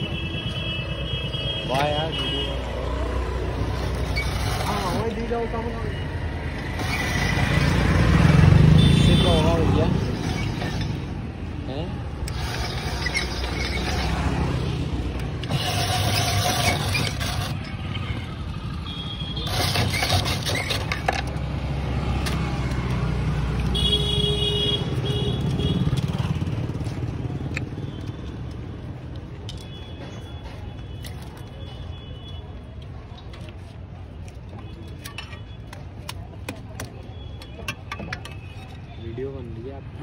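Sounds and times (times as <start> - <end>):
street traffic rumble: 0.0 - 40.0
ice shaving machine scraping: 3.6 - 5.3, 6.6 - 8.1, 9.1 - 11.1, 12.2 - 18.4, 19.3 - 21.1.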